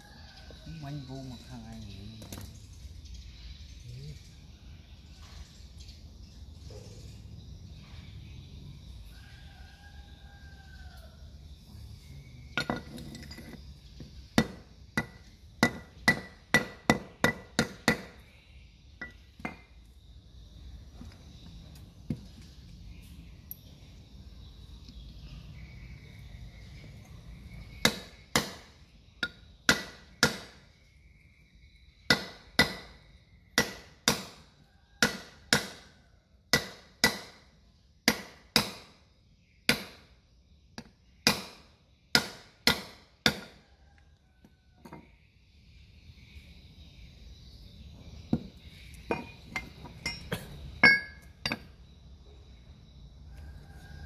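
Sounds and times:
hammer striking metal: 49.1 - 51.6.

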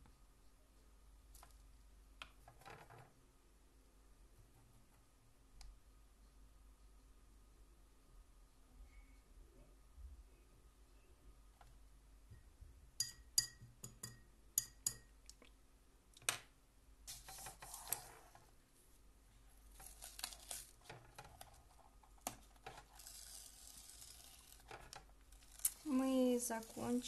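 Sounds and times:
masking tape peeling off paper: 19.7 - 20.9, 22.8 - 27.0.

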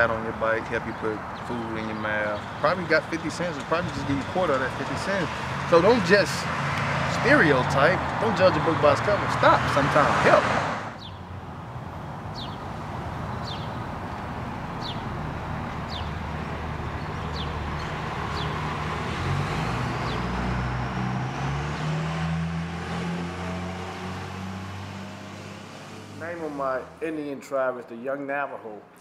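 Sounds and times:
cars passing: 0.0 - 27.2
bus engine hum: 7.1 - 26.1.

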